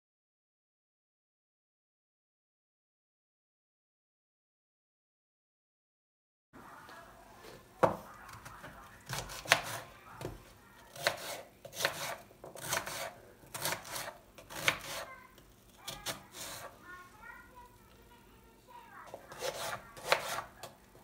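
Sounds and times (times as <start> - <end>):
knife slicing onion on board: 7.8 - 16.8, 19.1 - 20.8.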